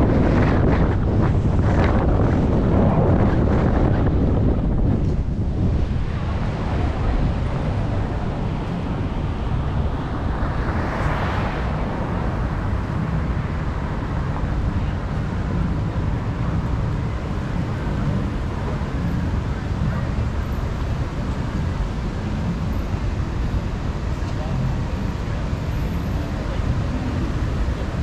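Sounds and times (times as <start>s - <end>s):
wind buffeting microphone: 0.0s - 20.2s
car road rumble: 0.0s - 28.0s
traffic noise: 0.0s - 28.0s.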